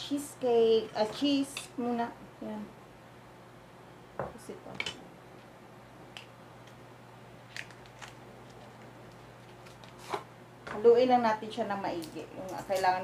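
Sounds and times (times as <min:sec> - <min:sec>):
foil wrapper crinkling: 0:07.5 - 0:10.2.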